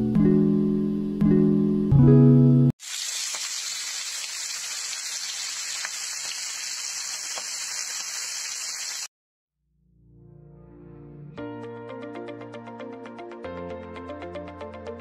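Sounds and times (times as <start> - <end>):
meat sizzling in frying pan: 2.8 - 9.1
oil popping: 2.8 - 9.1.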